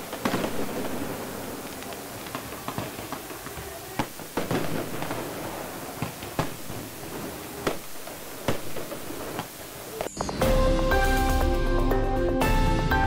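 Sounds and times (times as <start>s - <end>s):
pyrotechnics banging: 0.0s - 11.4s.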